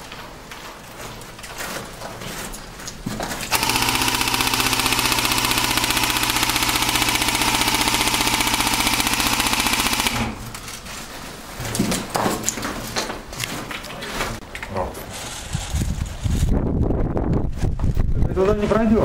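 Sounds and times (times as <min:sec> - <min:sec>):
airsoft rifle full-auto burst: 0:03.5 - 0:10.5.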